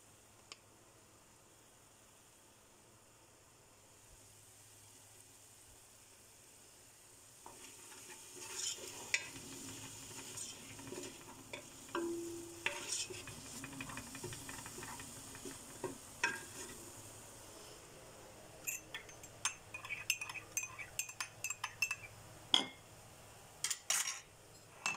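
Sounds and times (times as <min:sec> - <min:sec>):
light sizzle of frying: 0:00.0 - 0:24.9
wooden spatula scraping a pot: 0:07.5 - 0:16.9, 0:19.7 - 0:21.1
spatula knocking against pot: 0:10.8 - 0:16.7.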